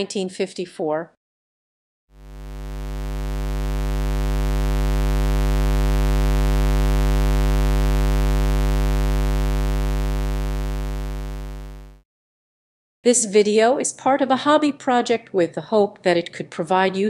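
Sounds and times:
electrical mains hum: 0:02.2 - 0:12.0.

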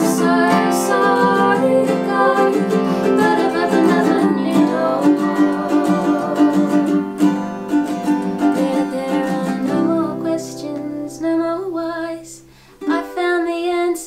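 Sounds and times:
woman singing: 0:00.0 - 0:07.1, 0:08.4 - 0:14.0
acoustic guitar and ukulele strumming: 0:00.0 - 0:14.0.

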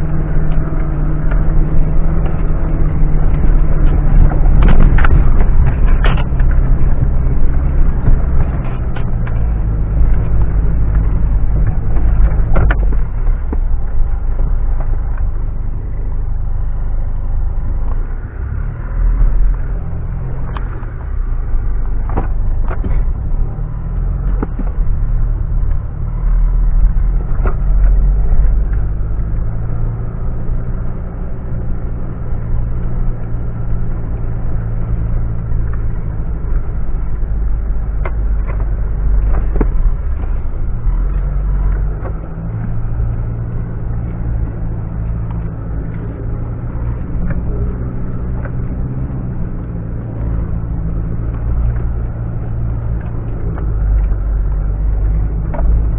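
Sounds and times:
car engine rumble: 0:00.0 - 0:55.9
knocks and rattles: 0:00.4 - 0:15.3.

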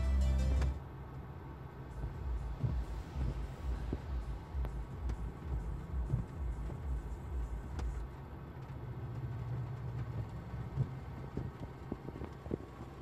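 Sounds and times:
pulsing bass from car speakers: 0:00.0 - 0:00.8, 0:01.8 - 0:08.1
low rumble in car cabin: 0:00.0 - 0:13.0.

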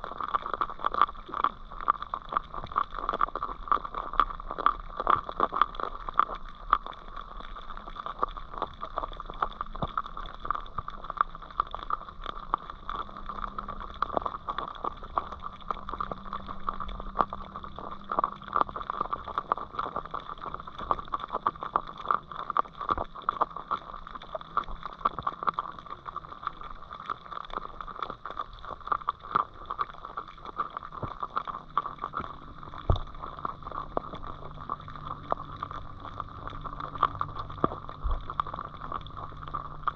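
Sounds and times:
small underwater clicks and crackles: 0:00.0 - 0:39.9.

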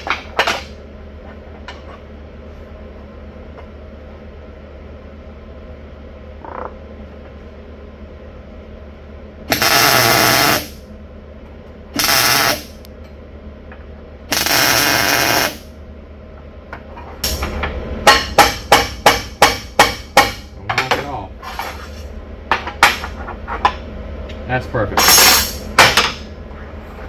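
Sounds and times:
welding hiss: 0:09.5 - 0:10.8, 0:12.0 - 0:12.8, 0:14.3 - 0:15.7.

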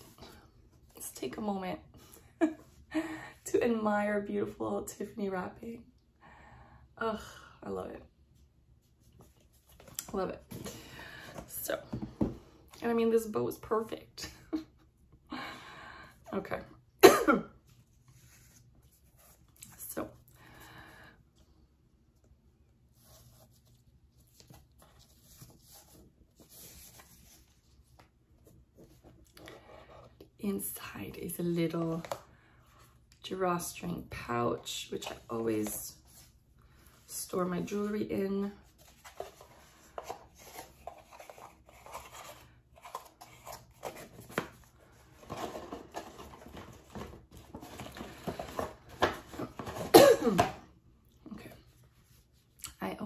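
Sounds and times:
gift box rustling and crinkling: 0:22.8 - 0:30.2, 0:37.1 - 0:50.6.

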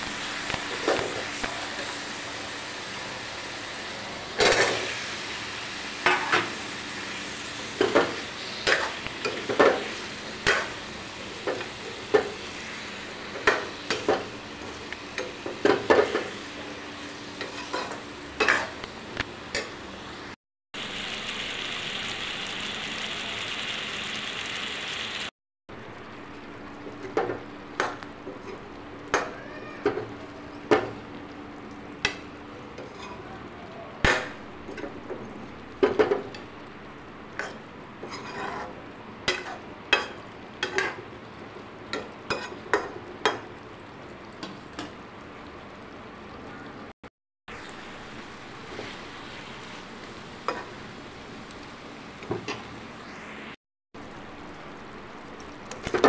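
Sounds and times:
oil sizzling in a pan: 0:00.0 - 0:46.4, 0:47.5 - 0:56.0
steel spatula scraping a pan: 0:32.8 - 0:33.2, 0:37.4 - 0:40.1.

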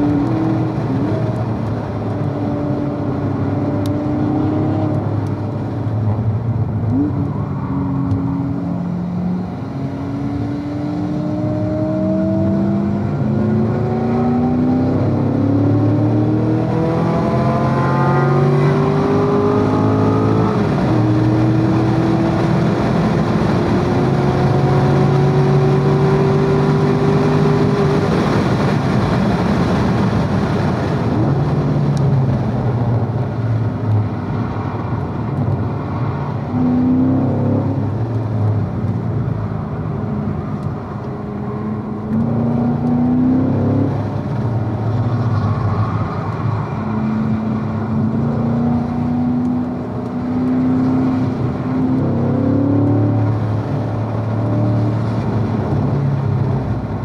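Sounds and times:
car engine revving from cabin: 0:07.9 - 0:28.1, 0:41.6 - 0:44.2, 0:47.9 - 0:56.0.

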